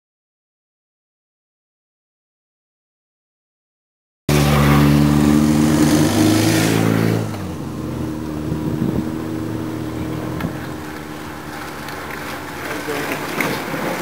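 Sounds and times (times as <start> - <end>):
vehicle engine running: 4.3 - 14.0.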